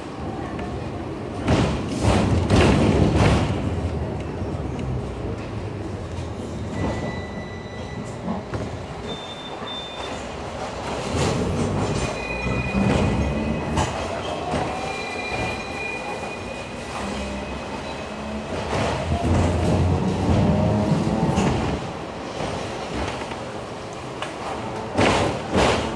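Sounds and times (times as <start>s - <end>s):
tram rumbling: 0.0s - 25.9s
wheels clunking on rails: 1.4s - 25.9s
wheels squealing: 11.0s - 21.4s.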